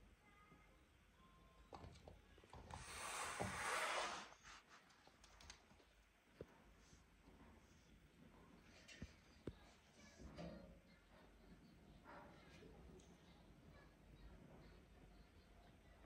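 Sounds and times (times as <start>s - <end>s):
rustling scrape: 2.7s - 4.8s.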